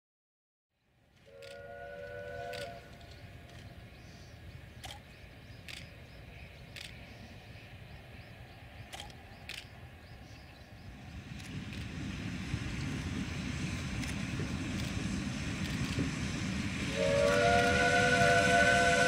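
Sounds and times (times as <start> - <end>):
distant locomotive rumble: 0.8 - 19.0
steam locomotive whistle chord: 1.3 - 3.2, 16.8 - 19.0
sharp clicks: 4.8 - 5.9, 8.9 - 9.8.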